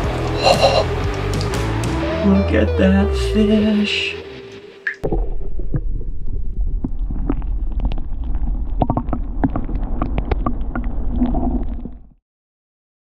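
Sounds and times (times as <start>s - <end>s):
muffled underwater rumble: 5.0s - 12.2s.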